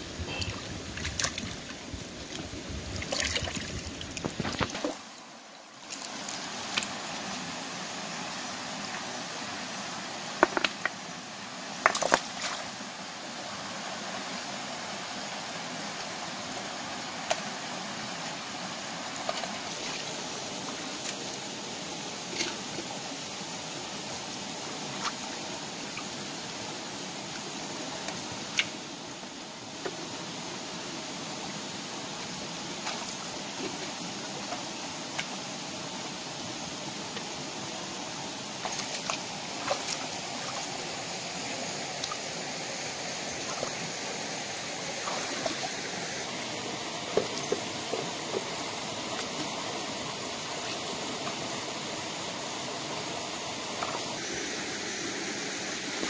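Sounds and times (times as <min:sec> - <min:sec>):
stream running over rocks: 0:00.0 - 0:56.0
stones knocking and splashing: 0:03.0 - 0:05.0, 0:10.4 - 0:11.0, 0:11.8 - 0:12.4.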